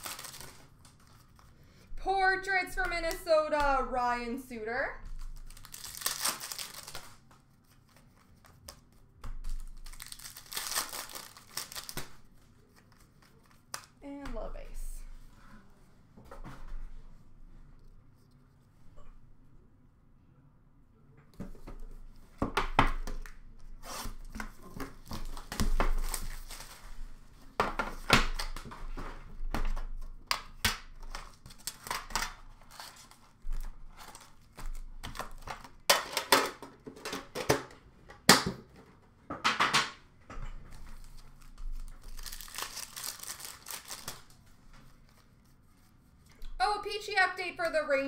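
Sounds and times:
wrappers tearing and crinkling: 0.0s - 1.4s, 5.2s - 7.3s, 9.4s - 14.0s, 25.0s - 26.9s, 41.0s - 44.4s.

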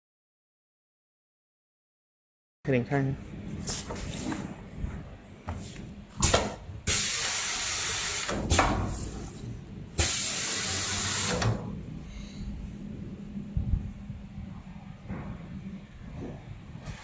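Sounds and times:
compressed air hiss: 6.2s - 9.4s, 10.0s - 12.8s
low steady hum: 8.3s - 17.0s.

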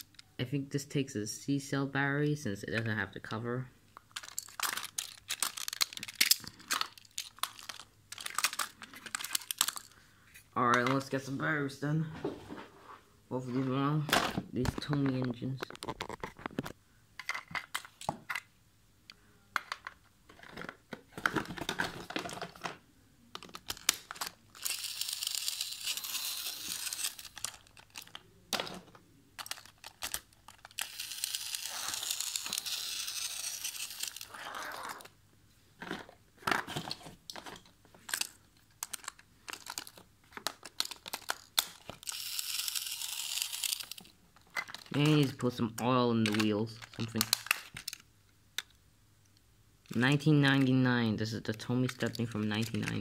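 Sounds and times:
rustling and crinkling: 4.0s - 11.1s, 12.2s - 16.8s, 25.7s - 31.0s, 33.6s - 42.0s, 43.6s - 45.5s
battery pushed into plastic toy: 29.4s - 34.3s.

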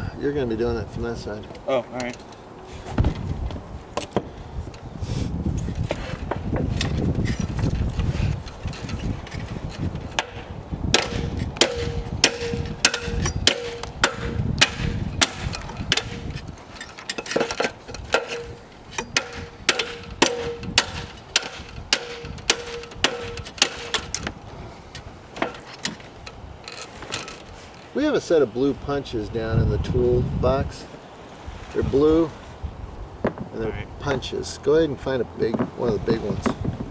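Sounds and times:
hammer striking metal: 10.2s - 16.3s, 17.2s - 24.2s.

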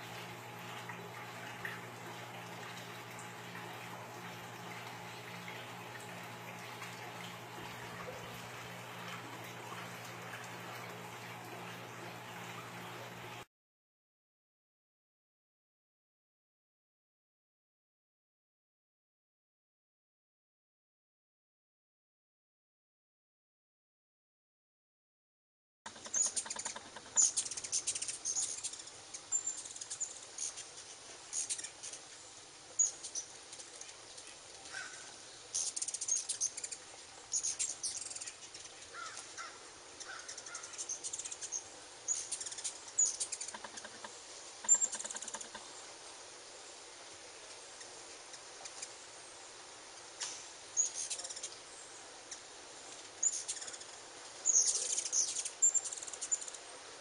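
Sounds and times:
hummingbirds chittering: 0.0s - 13.4s, 26.0s - 32.0s, 32.8s - 45.9s, 47.4s - 56.8s.

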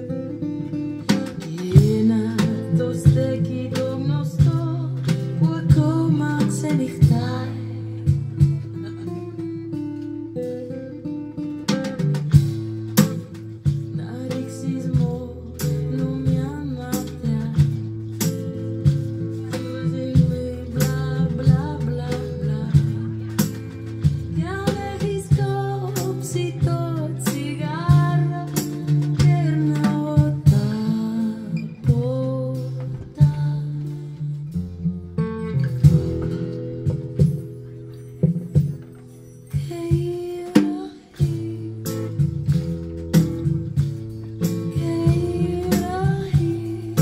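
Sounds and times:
woman singing: 0.0s - 9.7s, 13.1s - 34.7s, 39.5s - 43.0s, 44.4s - 47.0s
drum kit beat: 0.0s - 47.0s
strummed acoustic guitar: 0.0s - 47.0s.

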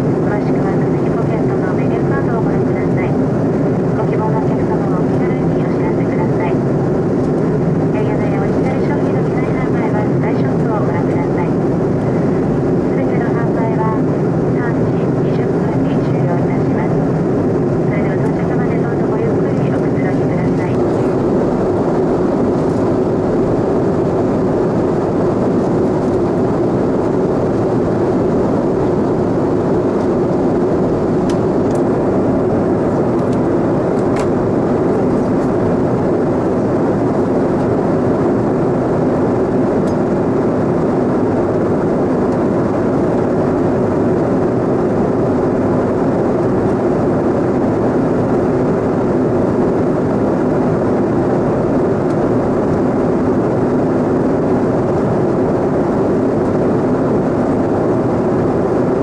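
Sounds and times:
airflow and jet engine noise: 0.0s - 59.0s.

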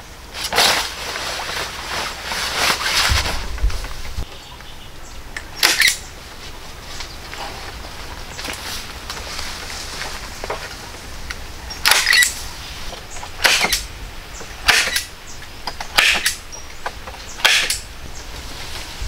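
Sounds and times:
tool chopping wood: 13.4s - 13.8s, 14.6s - 15.1s, 15.9s - 16.4s, 17.4s - 17.8s.

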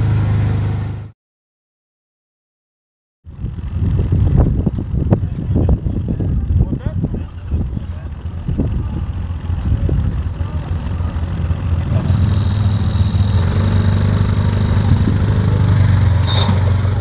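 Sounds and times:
off-road vehicle engine running: 0.0s - 1.1s, 3.3s - 17.0s.

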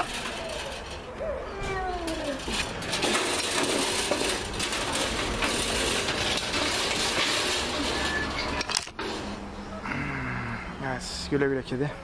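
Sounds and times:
metal cage trap rattling: 0.0s - 1.1s, 1.7s - 9.3s.

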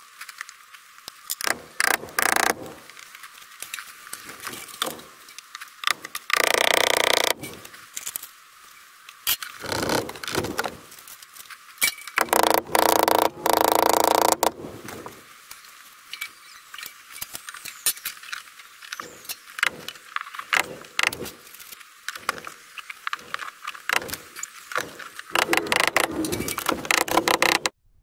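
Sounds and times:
hammer blows on staples: 1.4s - 2.9s, 5.8s - 7.6s, 12.2s - 14.6s, 19.0s - 21.5s, 22.2s - 27.8s.

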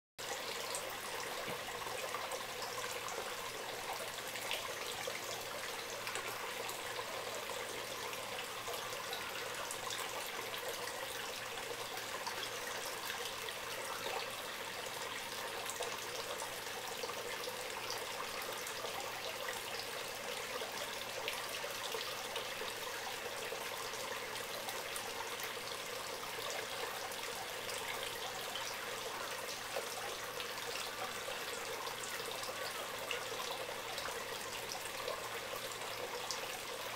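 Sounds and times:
water trickling: 0.2s - 36.9s.

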